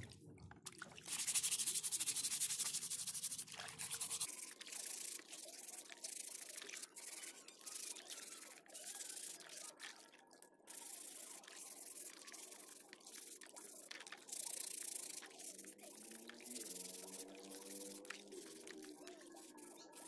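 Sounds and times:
water sloshing and dripping: 0.0s - 1.2s
sponge scrubbing plastic: 1.1s - 7.4s, 10.7s - 20.0s.

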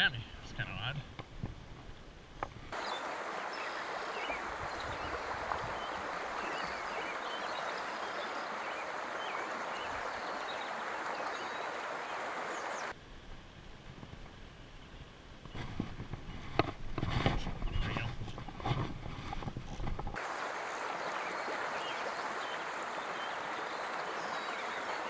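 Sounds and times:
creek water flowing: 2.4s - 13.0s, 15.6s - 25.0s.

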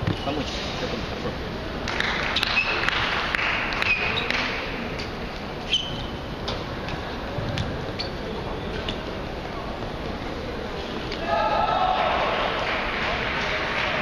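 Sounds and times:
table tennis balls bouncing: 1.9s - 5.2s
short high squeaks: 5.6s - 6.3s.

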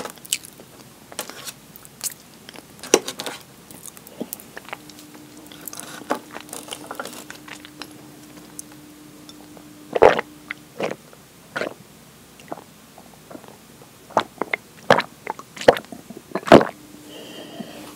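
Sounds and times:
wet chewing clicks: 3.7s - 11.0s, 11.6s - 11.8s, 13.3s - 16.8s.

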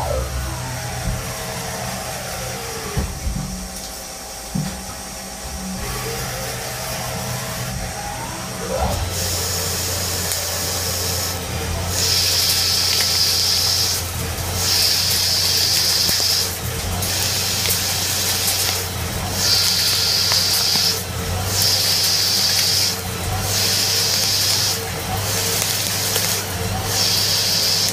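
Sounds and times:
lathe whine and hum: 0.0s - 27.9s
high hiss: 1.0s - 27.9s.

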